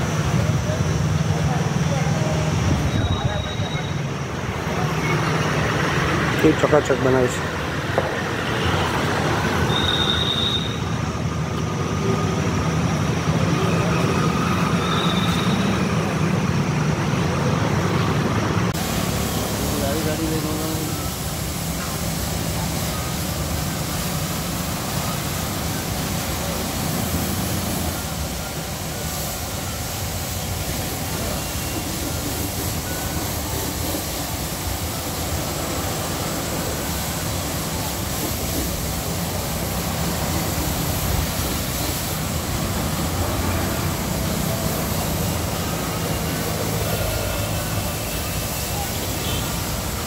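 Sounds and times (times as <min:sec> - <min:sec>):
pressure washer spraying water: 0:18.6 - 0:50.0.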